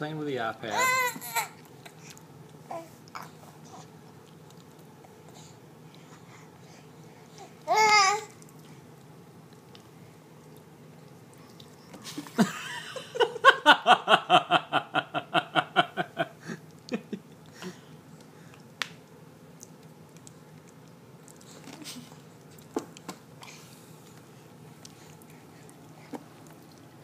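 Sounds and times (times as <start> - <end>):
person laughing: 12.1 - 17.3.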